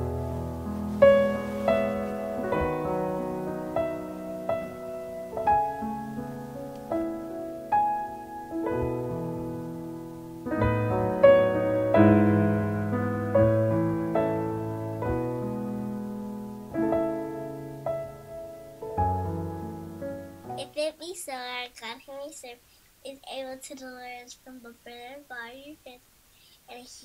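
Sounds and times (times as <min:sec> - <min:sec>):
gentle slow piano music: 0:00.0 - 0:20.8.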